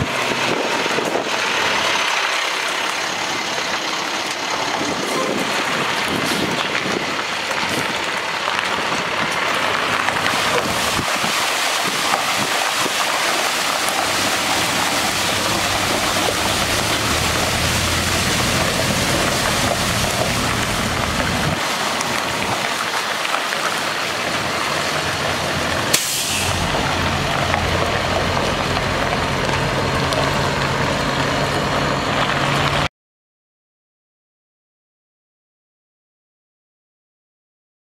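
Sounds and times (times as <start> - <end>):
water spraying onto gravel: 0.0 - 32.8
diesel engine running: 0.0 - 32.9
brief sharp hiss: 25.9 - 26.7.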